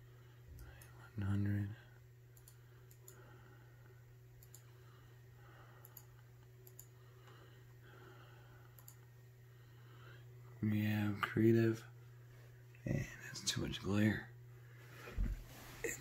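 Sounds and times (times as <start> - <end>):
low steady hum: 0.0 - 16.0
computer mouse clicks: 2.4 - 3.2, 4.4 - 4.7, 5.8 - 6.9, 8.7 - 9.0.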